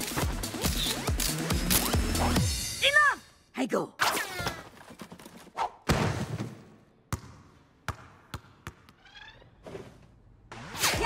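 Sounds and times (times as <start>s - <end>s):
basketball bouncing on wooden floor: 7.1s - 9.0s.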